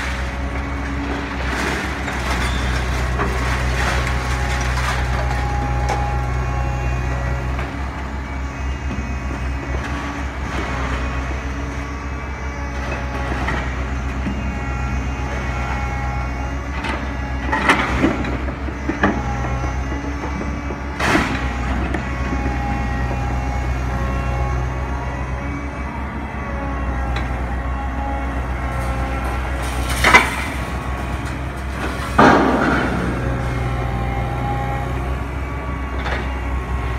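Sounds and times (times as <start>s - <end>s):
scrap metal clanking and scraping: 0.0s - 6.5s, 28.2s - 36.9s
diesel excavator engine running: 0.0s - 36.9s
loud metal clangs: 28.8s - 33.8s.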